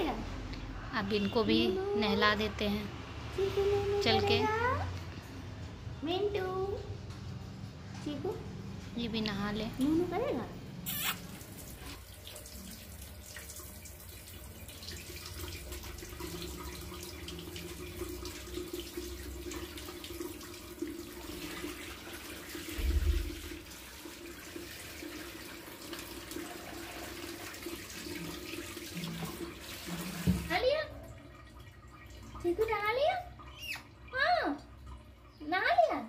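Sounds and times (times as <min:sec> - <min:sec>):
water spray splashing on cage: 0:09.8 - 0:30.8.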